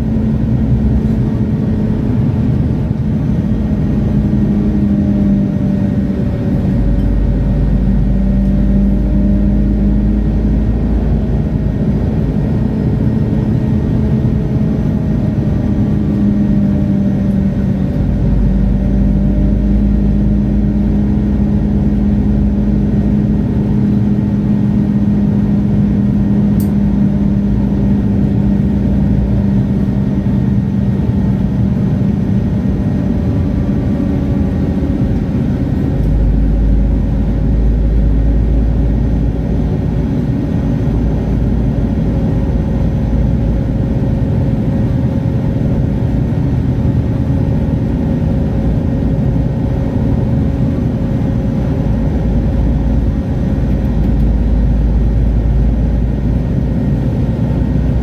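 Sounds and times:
bus diesel engine idling: 0:00.0 - 0:58.0.

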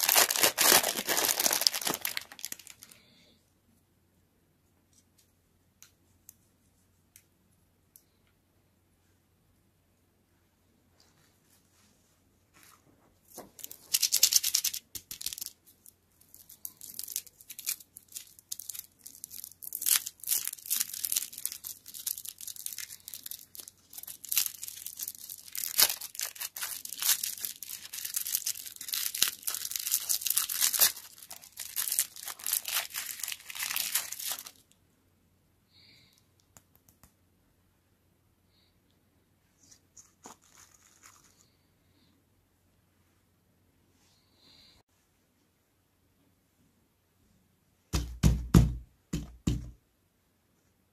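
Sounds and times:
wrapper crinkling and tearing: 0:00.0 - 0:03.1, 0:13.4 - 0:34.7, 0:40.0 - 0:41.4.

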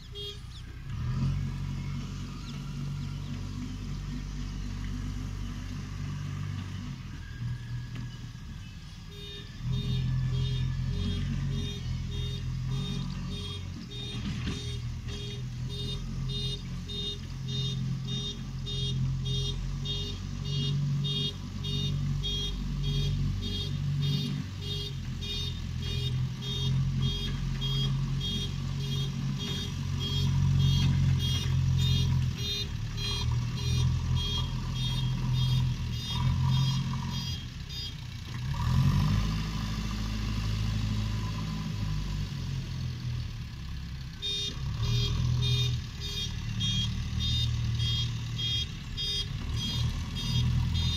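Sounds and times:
diesel engine running: 0:00.0 - 0:50.9
reversing alarm beeping: 0:09.1 - 0:38.0, 0:44.2 - 0:50.9.

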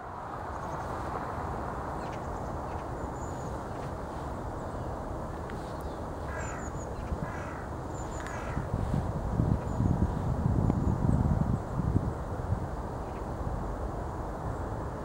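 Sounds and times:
steady outdoor rumble: 0:00.0 - 0:15.0
wind buffeting microphone: 0:00.0 - 0:15.0
crow cawing: 0:06.3 - 0:08.7.

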